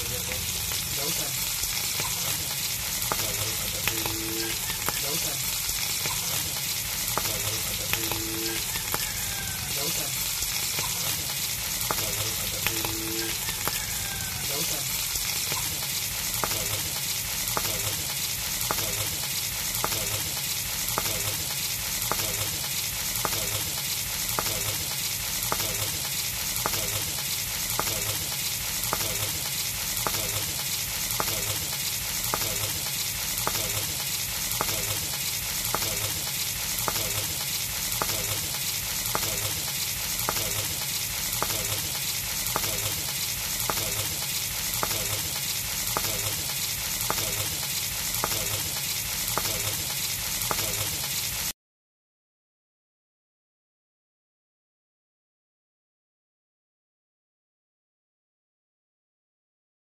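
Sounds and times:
fish sizzling in oil: 0.0s - 51.6s
faint regular ticking: 15.2s - 50.9s.

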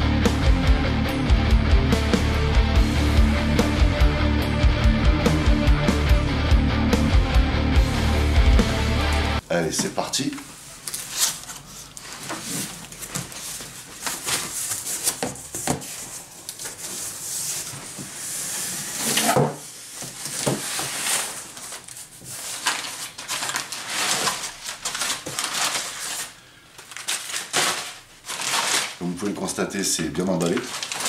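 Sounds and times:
packing paper rustling: 9.8s - 18.2s, 19.8s - 31.0s
cardboard flaps scraping: 11.0s - 26.3s.

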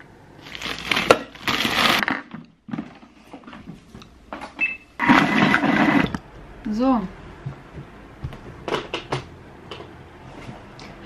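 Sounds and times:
blender crushing frozen fruit: 0.5s - 2.3s, 5.0s - 6.2s.

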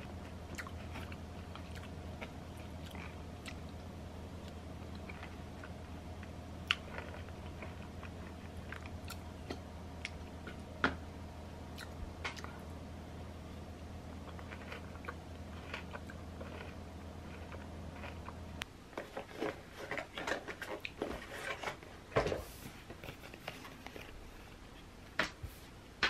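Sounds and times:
quiet eating sounds: 0.0s - 25.7s
steady low hum: 0.0s - 26.0s
rustling and clicking of handling: 17.3s - 25.7s.

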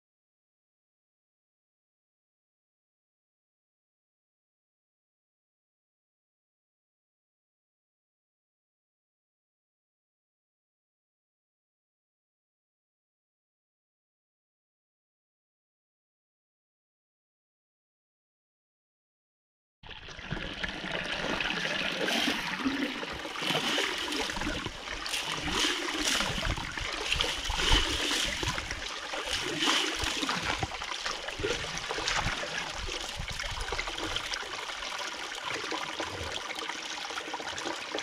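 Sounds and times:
water gushing and swirling: 19.9s - 38.0s
hand splashing in water: 21.4s - 33.0s.

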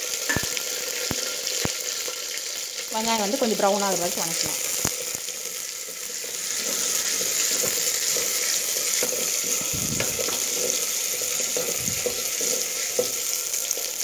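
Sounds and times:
shallots sizzling in hot oil: 0.0s - 14.0s
stirring scrapes and knocks: 6.6s - 13.2s.

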